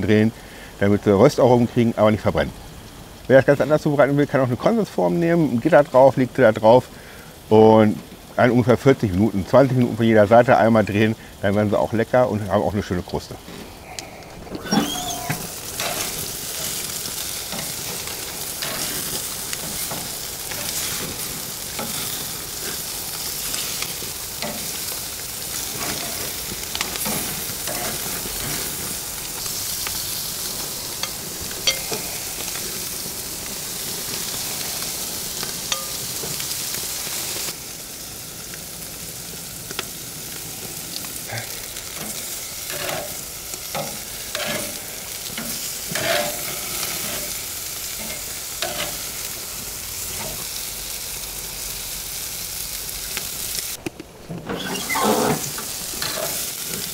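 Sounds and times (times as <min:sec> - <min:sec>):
chicken sizzling on a grill: 0:00.0 - 0:53.8, 0:54.5 - 0:56.9
metal tongs clicking on grate: 0:31.0 - 0:32.0, 0:35.7 - 0:36.0.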